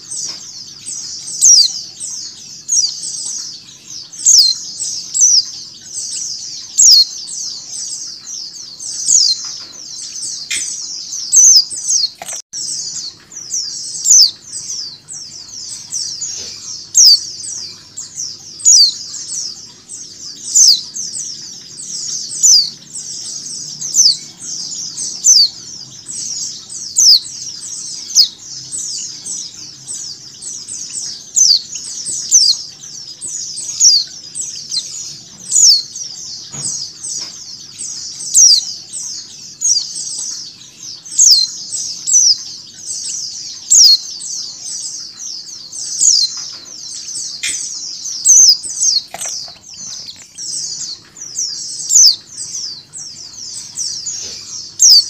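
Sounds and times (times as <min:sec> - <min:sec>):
birds twittering: 0:00.0 - 0:55.0
sharp falling bird chirps: 0:47.3 - 0:51.0.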